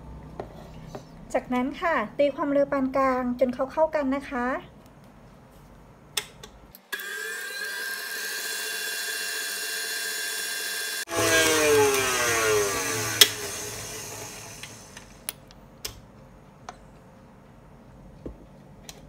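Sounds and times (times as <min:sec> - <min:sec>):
stand mixer motor whine: 0:07.0 - 0:15.3.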